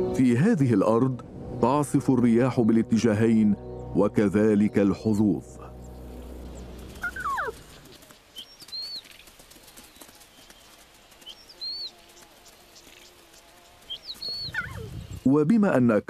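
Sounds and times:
high bird chirps: 0:05.8 - 0:15.3
falling whistled bird calls: 0:07.0 - 0:09.2, 0:13.9 - 0:15.3.

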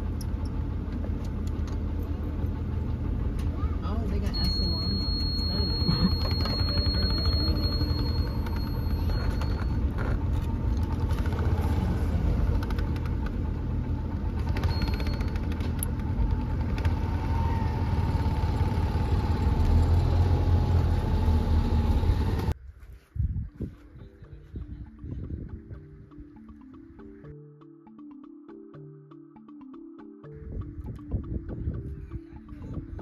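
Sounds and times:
vehicle engine and road noise: 0:00.0 - 0:22.6.

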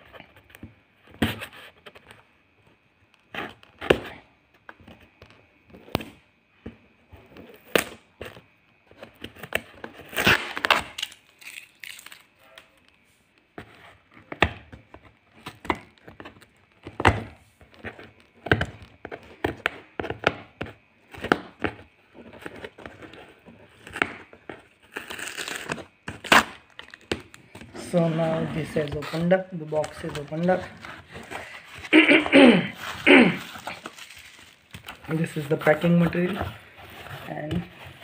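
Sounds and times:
cardboard box tearing: 0:09.5 - 0:12.2, 0:24.8 - 0:27.1, 0:27.8 - 0:38.0
packing tape ripping: 0:09.5 - 0:12.8, 0:24.9 - 0:27.4, 0:31.4 - 0:35.3.

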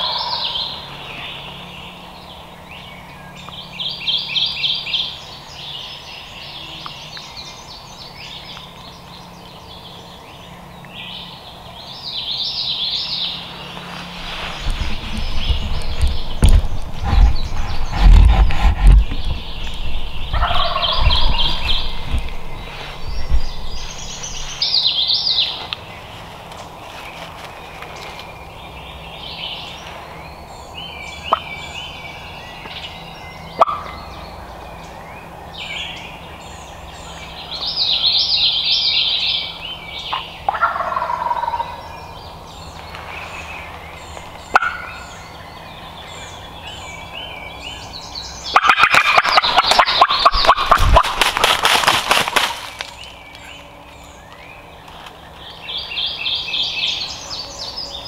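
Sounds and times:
turkey gobbling: 0:00.0 - 0:00.8, 0:20.2 - 0:22.3, 0:33.6 - 0:34.0, 0:40.1 - 0:41.8, 0:44.5 - 0:45.1, 0:48.5 - 0:52.9
songbirds singing: 0:00.0 - 0:58.0.

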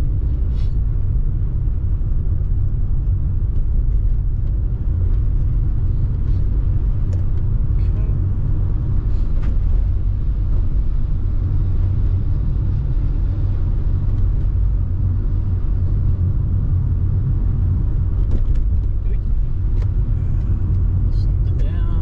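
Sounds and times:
car engine and tyre noise: 0:00.0 - 0:22.0.

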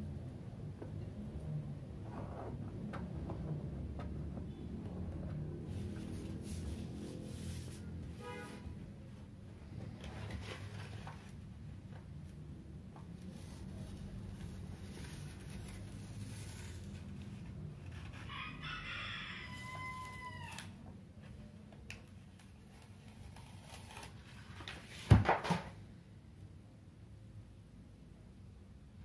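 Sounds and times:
crackle of sheet being handled: 0:09.8 - 0:18.2
rooster crowing: 0:18.2 - 0:20.8.

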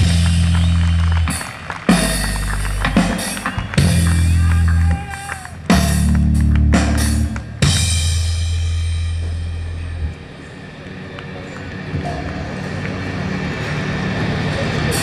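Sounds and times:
held low bass note: 0:08.1 - 0:10.6.

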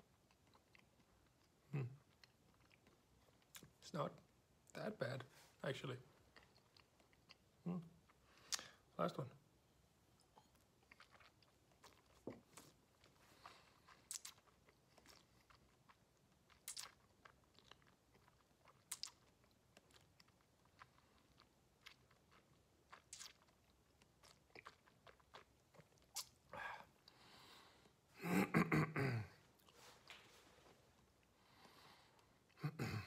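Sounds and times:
wet mouth clicks and lip smacks: 0:08.5 - 0:08.7, 0:14.0 - 0:14.5, 0:16.5 - 0:17.0, 0:18.7 - 0:19.2, 0:22.9 - 0:23.5, 0:24.2 - 0:26.4
voiced throat sound: 0:28.2 - 0:29.4, 0:32.6 - 0:33.0.

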